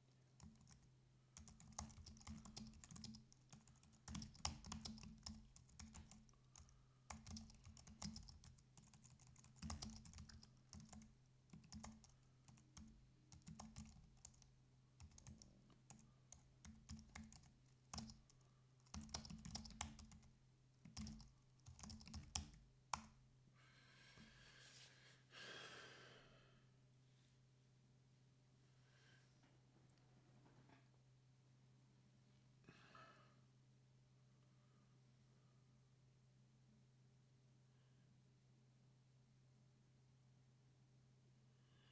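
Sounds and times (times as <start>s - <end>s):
typing on computer keyboard: 0.4s - 23.2s.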